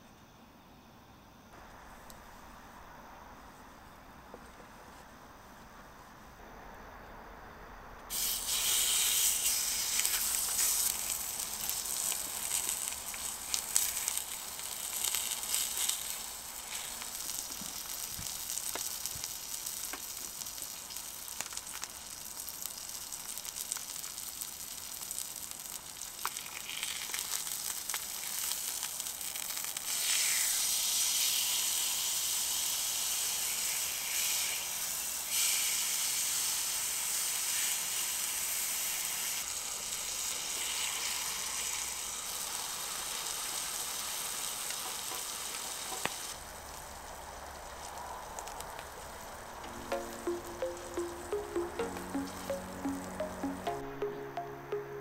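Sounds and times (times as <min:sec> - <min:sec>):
meat sizzling on a griddle: 0:08.1 - 0:49.5.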